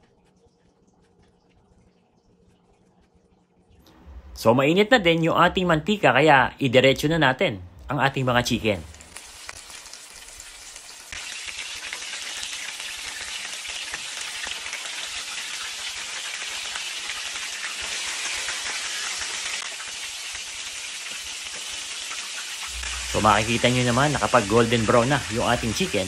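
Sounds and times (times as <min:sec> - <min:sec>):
chicken deep-frying in oil: 0:08.0 - 0:26.0.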